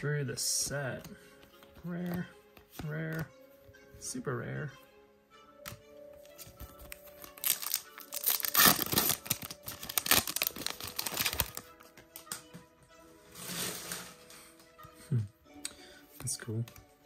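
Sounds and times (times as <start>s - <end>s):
foil wrapper tearing and crinkling: 7.2s - 11.6s.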